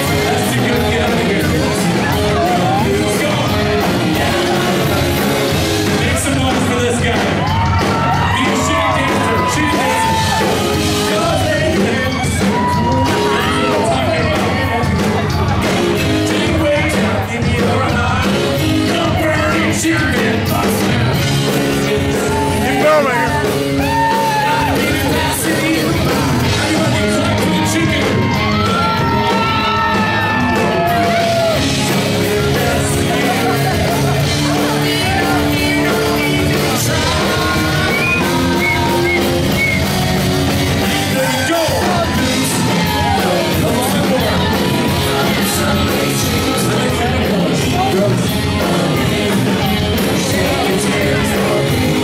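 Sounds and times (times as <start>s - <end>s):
man singing into a microphone: 0.0s - 40.0s, 40.6s - 52.0s
crowd yelling and whooping: 0.0s - 52.0s
live band music: 0.0s - 52.0s.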